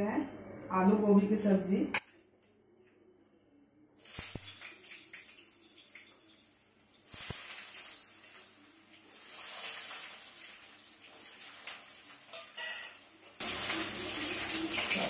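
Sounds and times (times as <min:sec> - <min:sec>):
potatoes sizzling in hot oil: 0:04.0 - 0:15.0.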